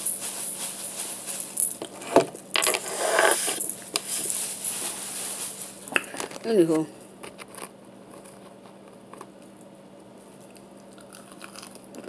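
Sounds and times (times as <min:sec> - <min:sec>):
chewing and crunching: 0:10.2 - 0:12.0.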